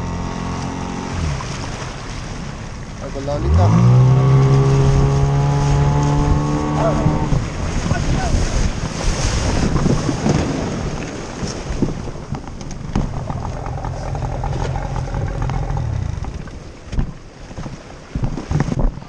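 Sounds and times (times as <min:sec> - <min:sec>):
wind buffeting microphone: 0:03.4 - 0:19.0.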